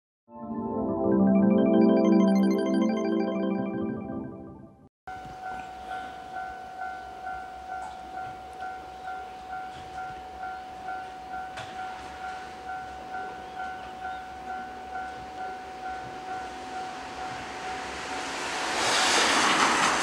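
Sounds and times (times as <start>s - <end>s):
level crossing bell dinging: 5.1s - 17.6s.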